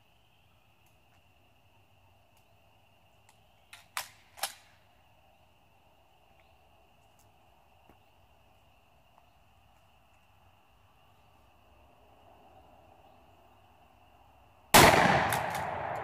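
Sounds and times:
insect chirring: 0.0 - 14.7
shotgun bangs: 14.8 - 16.0.

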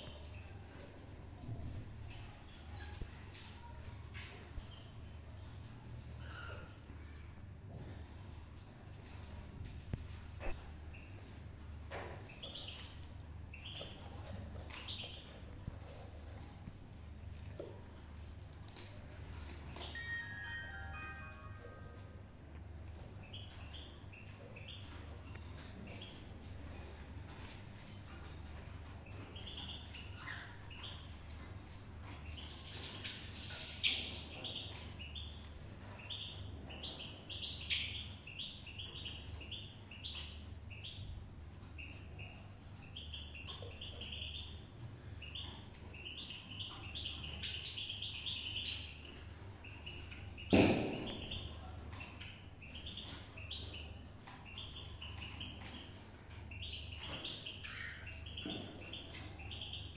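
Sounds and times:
chicks cheeping: 0.0 - 59.9
sharp knock: 50.5 - 51.1.

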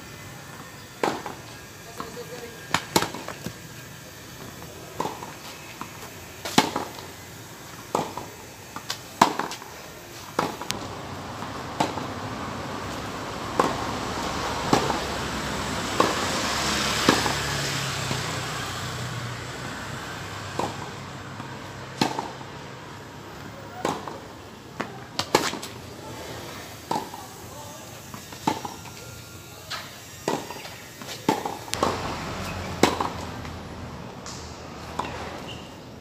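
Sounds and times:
tennis balls struck by rackets: 0.8 - 3.6, 4.2 - 12.2, 12.9 - 14.0, 14.7 - 15.1, 16.0 - 16.3, 17.0 - 17.4, 20.4 - 22.6, 23.7 - 25.8, 26.8 - 27.4, 28.3 - 29.0, 29.7 - 35.3.

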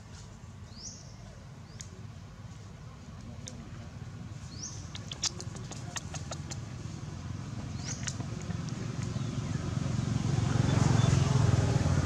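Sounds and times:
vehicle engine hum: 3.6 - 12.0.

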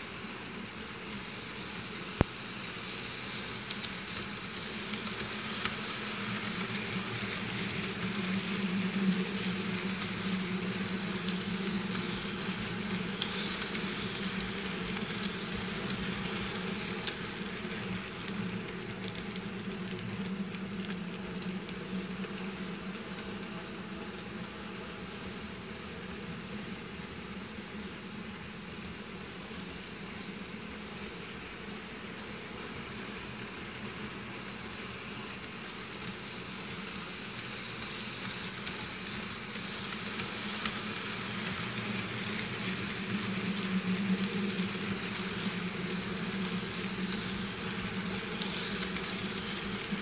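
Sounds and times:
light clicks of train: 0.0 - 50.0
model train running: 0.0 - 50.0.

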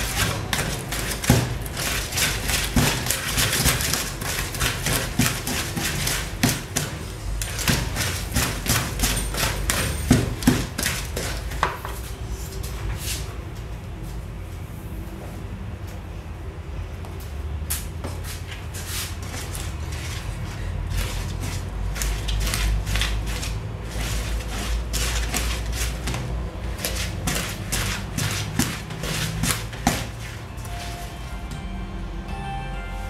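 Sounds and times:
wooden spoon scraping plastic bowl: 0.0 - 11.8, 18.8 - 31.0.

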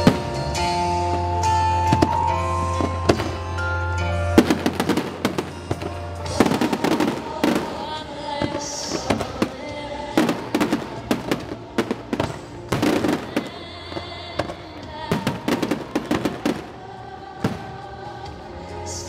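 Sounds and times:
fireworks shells bursting: 0.0 - 9.6
music playing: 0.0 - 19.0.

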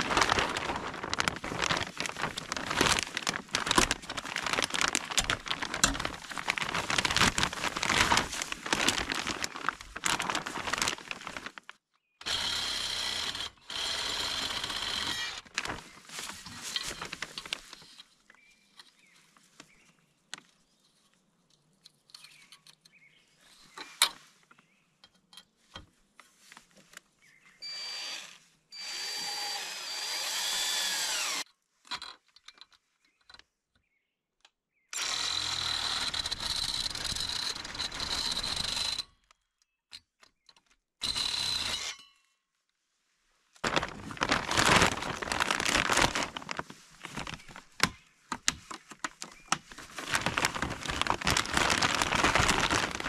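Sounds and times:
power drill running: 12.2 - 15.4, 27.6 - 31.4, 35.0 - 36.3.

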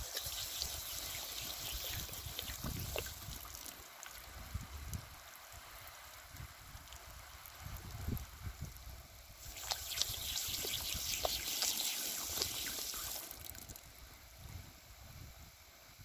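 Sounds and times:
spray splattering on animal: 0.0 - 3.8, 9.4 - 13.8
water spraying from hose: 0.0 - 8.5, 9.4 - 14.1.

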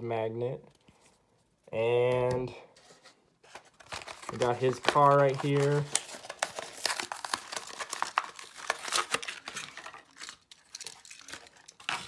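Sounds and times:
cardboard and plastic packaging tearing: 3.5 - 12.0.

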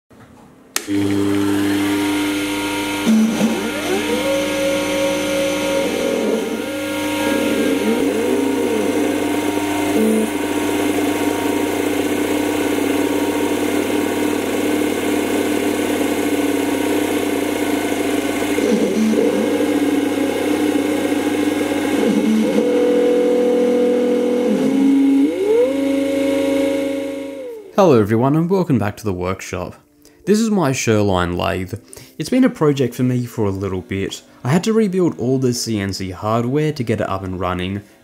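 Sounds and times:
stepper motors whining: 0.8 - 27.7
lathe spindle motor humming: 0.8 - 27.8.

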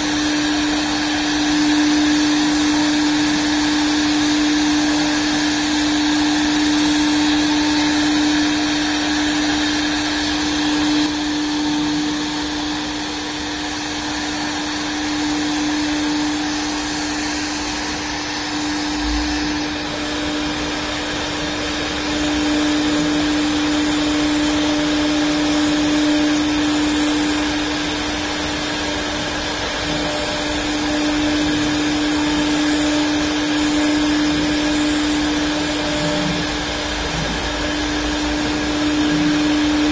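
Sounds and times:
router bit cutting wood: 0.0 - 39.9
router spindle whine: 0.0 - 39.9.

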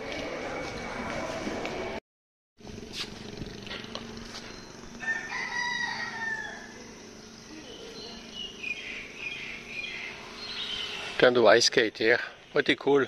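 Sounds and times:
bird chirps: 4.3 - 5.0, 6.5 - 11.2
rooster crowing: 5.0 - 7.0.

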